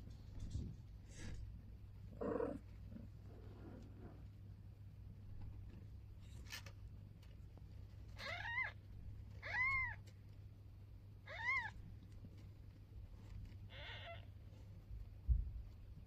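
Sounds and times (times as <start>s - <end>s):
steady low hum: 0.0s - 16.0s
cat meowing: 9.4s - 10.0s, 11.3s - 11.8s, 13.7s - 14.3s.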